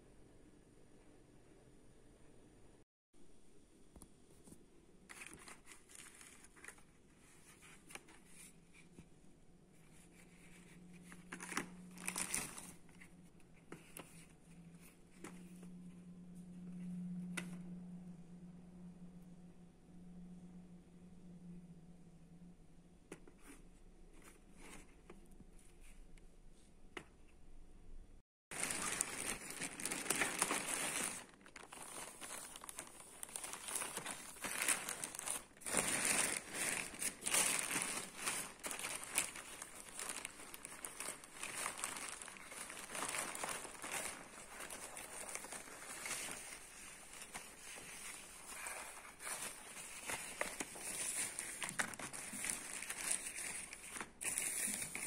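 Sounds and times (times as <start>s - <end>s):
packaging crinkling and tearing: 11.1s - 13.0s, 28.5s - 55.0s.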